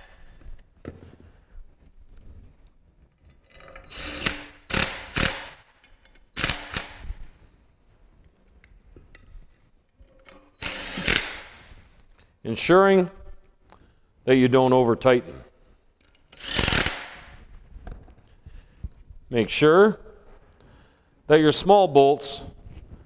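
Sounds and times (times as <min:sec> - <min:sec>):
cordless drill driving bolts: 0:03.6 - 0:05.6, 0:10.3 - 0:11.6, 0:16.3 - 0:17.2.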